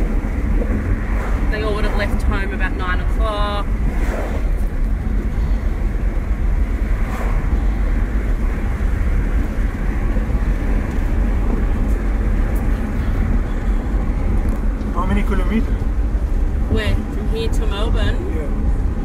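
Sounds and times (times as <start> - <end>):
car engine hum: 0.0 - 19.0
tyre and road noise: 0.0 - 19.0.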